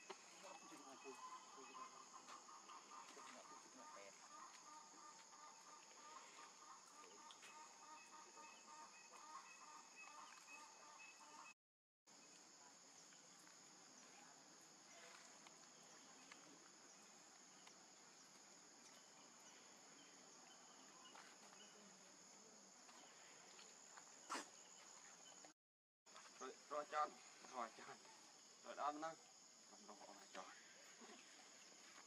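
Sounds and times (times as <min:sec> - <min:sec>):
high-pitched insect chorus: 0:00.0 - 0:11.5, 0:26.1 - 0:32.0.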